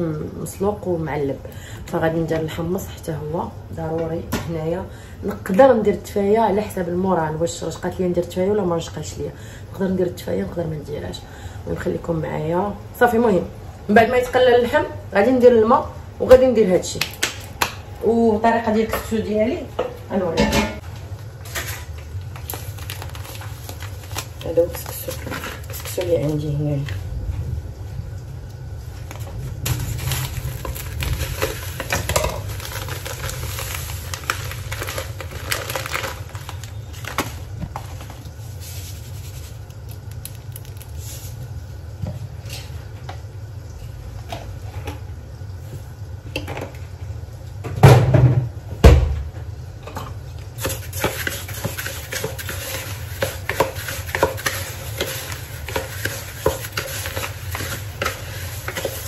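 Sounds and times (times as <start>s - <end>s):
plastic packet rustling: 21.5s - 26.3s, 29.2s - 41.4s, 50.6s - 59.0s
grains crackling stirred by hand: 29.6s - 37.2s, 37.8s - 41.4s, 50.6s - 59.0s.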